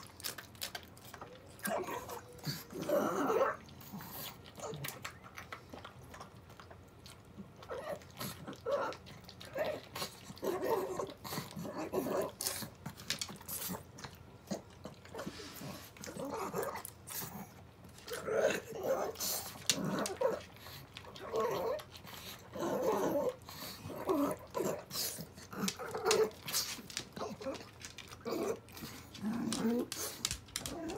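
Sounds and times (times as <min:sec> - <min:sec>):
tongue and teeth clicking on bowl: 0:03.6 - 0:10.4.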